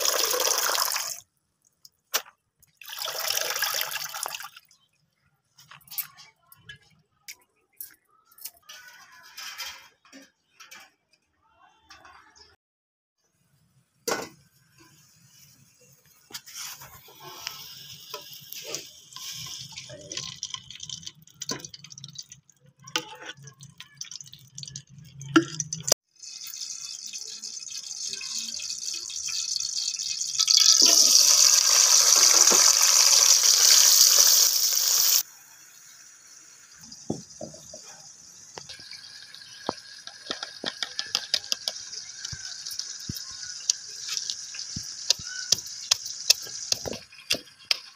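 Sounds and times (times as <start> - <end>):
food sizzling in hot oil: 14.5 - 23.2, 26.1 - 47.9.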